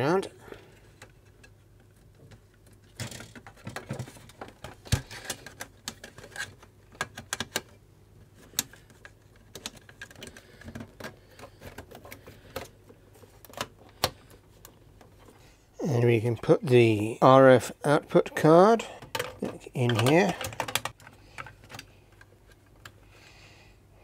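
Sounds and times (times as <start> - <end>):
plastic and metal parts clicking: 0.9 - 7.8, 8.4 - 15.3, 19.0 - 23.0.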